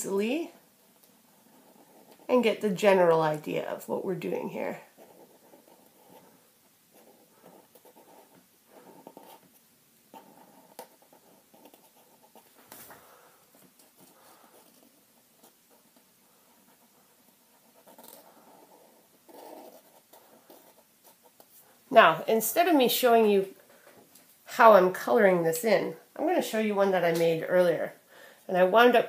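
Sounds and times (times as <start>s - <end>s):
marker scratching on paper: 4.9s - 12.6s, 13.6s - 21.7s.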